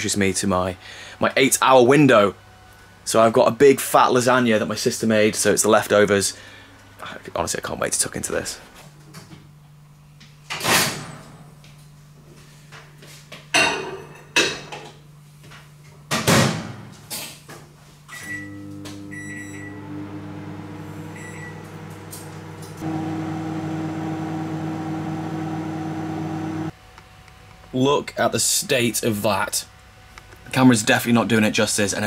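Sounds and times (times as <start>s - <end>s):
microwave oven humming: 18.1s - 27.6s.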